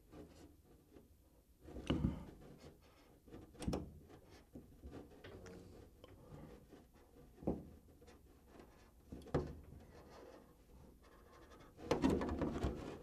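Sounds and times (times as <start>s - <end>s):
plastic shell rustling and knocking: 11.8s - 13.0s.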